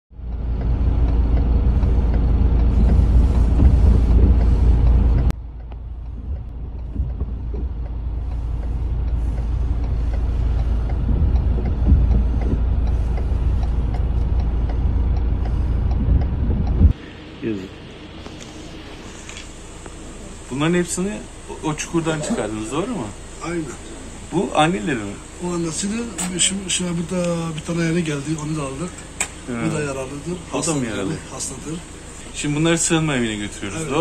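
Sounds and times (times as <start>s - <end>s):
diesel engine rumbling: 0.1s - 34.0s
small knocks: 2.9s - 8.0s.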